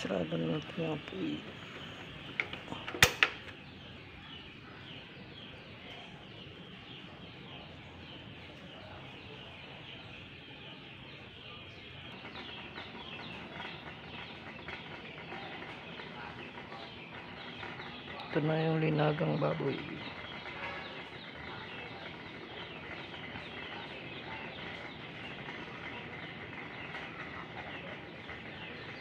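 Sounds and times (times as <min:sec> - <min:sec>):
chickens and birds chirping: 0:00.0 - 0:29.0.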